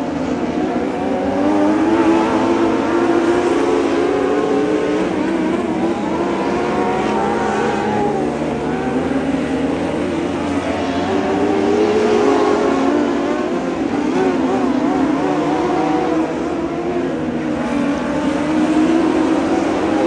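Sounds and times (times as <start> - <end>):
race car engines revving: 0.0 - 20.0.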